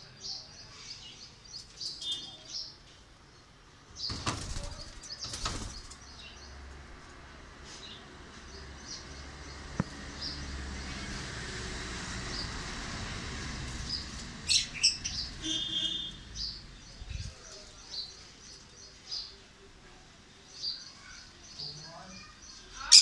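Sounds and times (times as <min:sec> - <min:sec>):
parrots chirping: 0:13.9 - 0:16.6.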